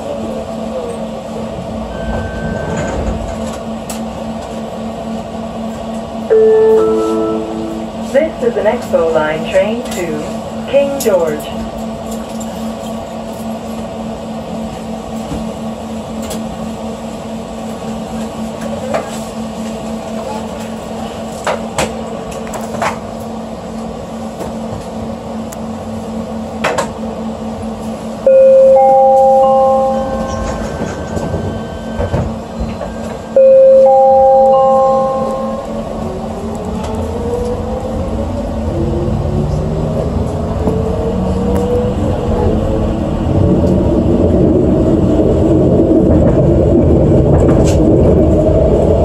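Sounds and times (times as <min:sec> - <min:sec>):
train car humming: 0:00.0 - 0:49.0
door-closing chime rising tones: 0:06.3 - 0:07.9, 0:28.3 - 0:35.8.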